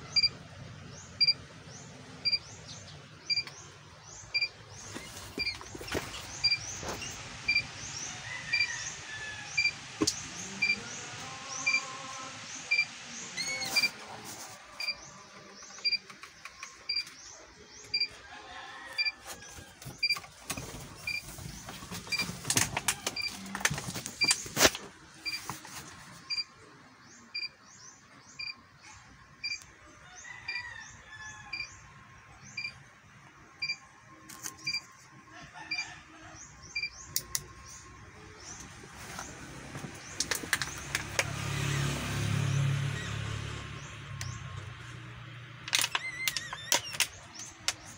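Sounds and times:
electronic warning beeper: 9.5 - 9.8, 10.5 - 10.9, 12.7 - 14.0.

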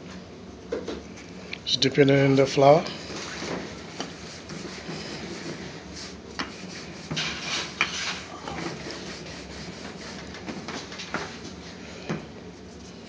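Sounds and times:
rolling pin rubbing on dough: 2.6 - 13.0.

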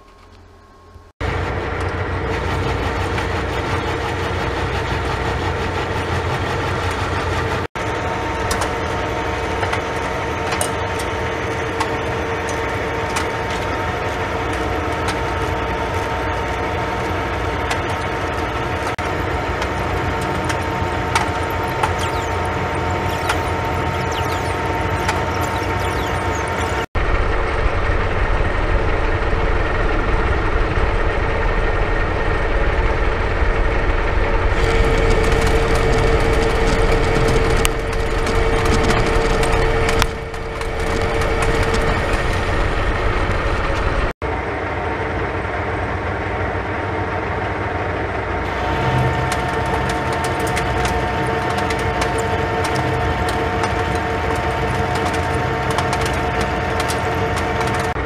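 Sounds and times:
lathe motor and gear whine: 0.3 - 58.0.

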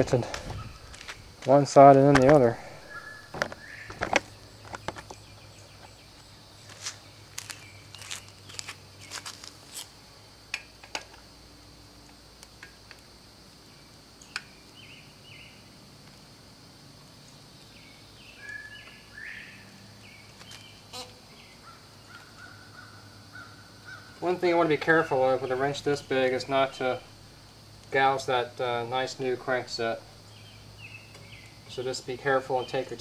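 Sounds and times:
short bird calls: 2.6 - 4.4.

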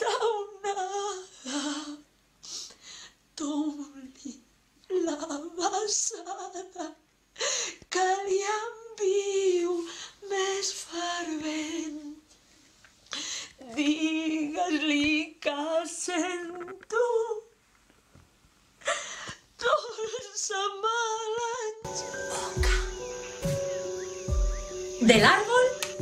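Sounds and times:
woman singing wavering notes: 21.8 - 26.0.

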